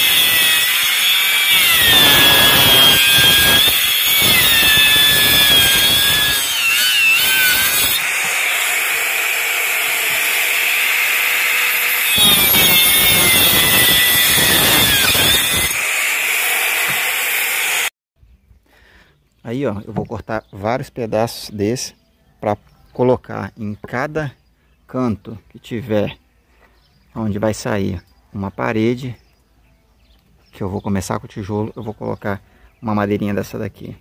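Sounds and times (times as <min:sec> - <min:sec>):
circular saw cutting wood: 0:00.0 - 0:17.9.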